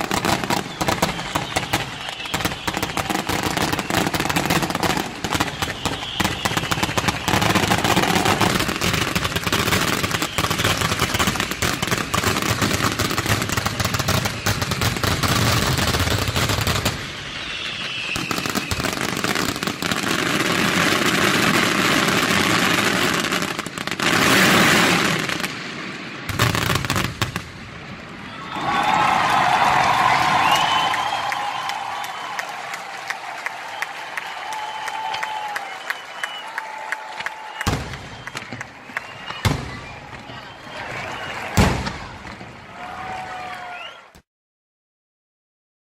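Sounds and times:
rapid firecracker bangs: 0.0 - 28.0, 37.6 - 40.5, 41.2 - 42.6.

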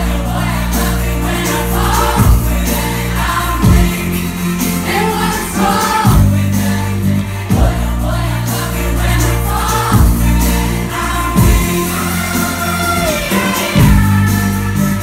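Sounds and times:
live pop band playing: 0.0 - 15.0
person singing: 10.5 - 15.0.

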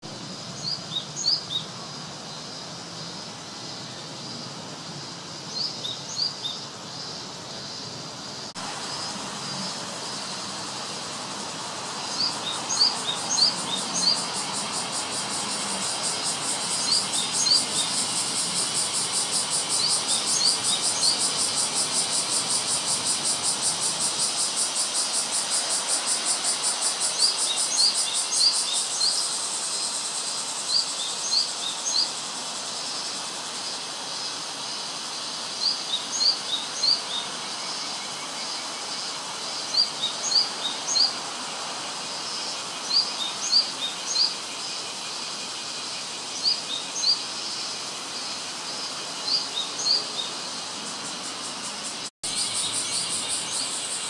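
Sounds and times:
cicada pulsing buzz: 0.0 - 54.0
bird singing: 0.5 - 2.6, 5.5 - 7.2, 12.0 - 22.2, 27.0 - 29.4, 30.6 - 32.2, 35.6 - 38.6, 39.7 - 41.2, 42.8 - 44.4, 46.3 - 47.2, 49.2 - 50.4.

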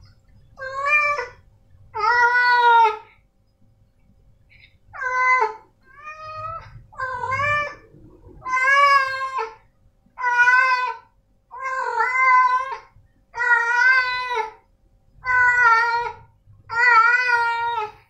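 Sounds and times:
cat meowing loudly: 5.0 - 7.8, 8.4 - 9.6, 10.2 - 14.6, 15.2 - 18.0.

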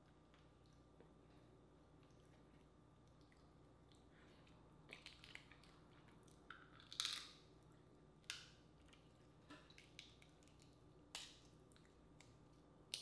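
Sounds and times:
crab shell cracking: 6.5 - 7.4.

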